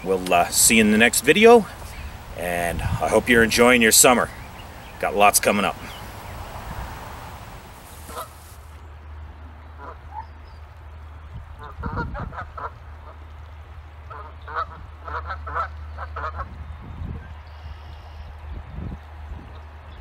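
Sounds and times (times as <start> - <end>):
birds calling: 0.0 - 8.8
low steady hum: 0.0 - 9.6.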